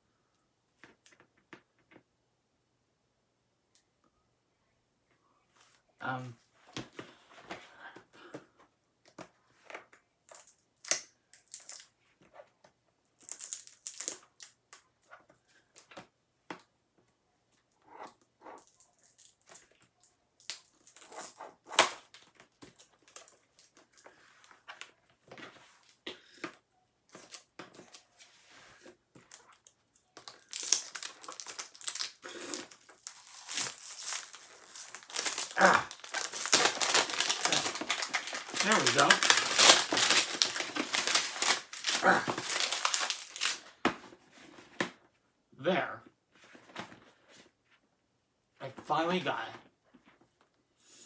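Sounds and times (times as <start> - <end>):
plastic shrink wrap crinkling: 29.3 - 43.8.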